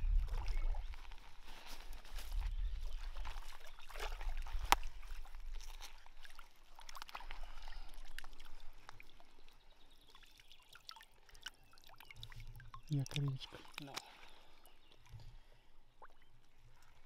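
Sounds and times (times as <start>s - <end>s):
water sloshing and trickling: 0.0s - 17.0s.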